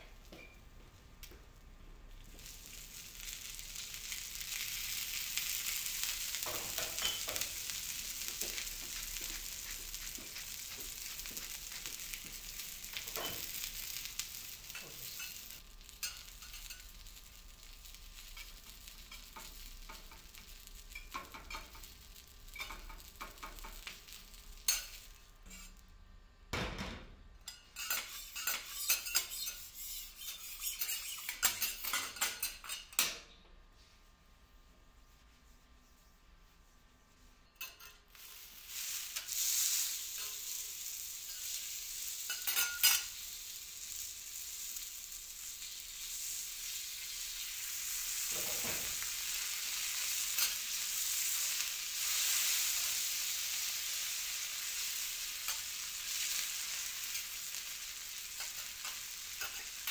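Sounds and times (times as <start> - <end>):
food sizzling on a griddle: 2.0 - 26.0, 27.5 - 32.9, 37.6 - 59.9
metal spatulas scraping and tapping: 6.4 - 7.6, 8.2 - 14.0, 14.7 - 16.9, 18.4 - 21.9, 22.5 - 24.1, 24.7 - 25.8, 27.5 - 33.3, 37.5 - 38.3, 42.2 - 43.2, 48.2 - 50.8, 58.2 - 59.9.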